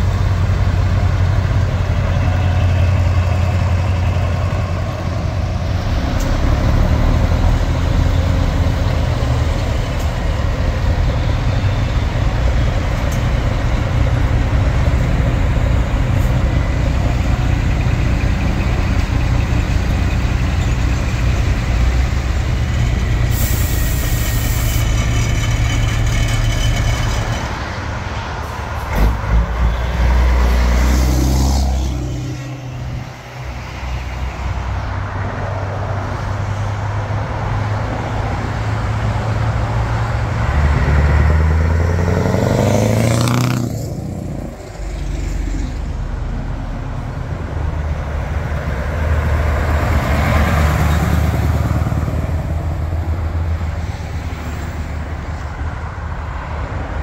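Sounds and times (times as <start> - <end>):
truck revving: 0.0 - 55.3
truck diesel engines: 0.0 - 57.0
air brake hiss: 23.3 - 24.9.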